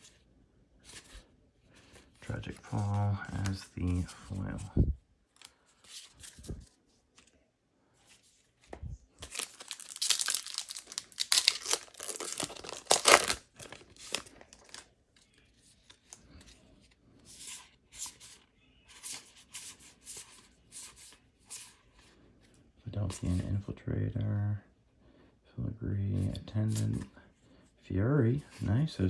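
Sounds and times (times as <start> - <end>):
trading cards rustling and flicking: 1.8 - 4.7, 8.6 - 16.6
foil wrapper tearing and crinkling: 9.2 - 14.8.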